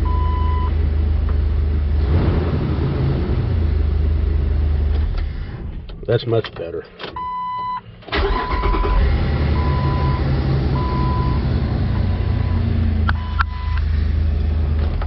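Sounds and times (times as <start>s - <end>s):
car engine starting and idling: 0.0s - 15.0s
dashboard warning chime: 7.2s - 7.8s.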